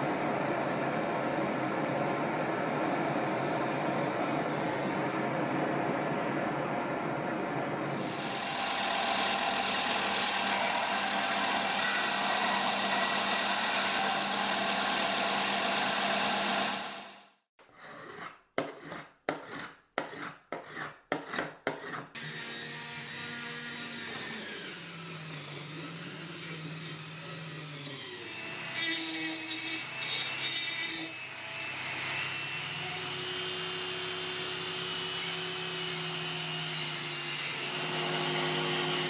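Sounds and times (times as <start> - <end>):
belt sander grinding metal: 8.0 - 17.1.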